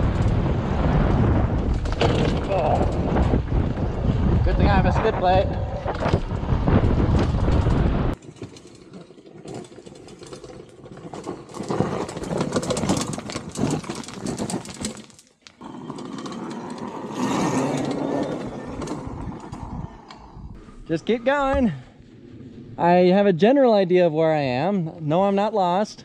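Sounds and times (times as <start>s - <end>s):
wind rush on camera: 0.0s - 8.2s, 17.8s - 21.8s
tyres crunching over stones: 7.3s - 19.2s.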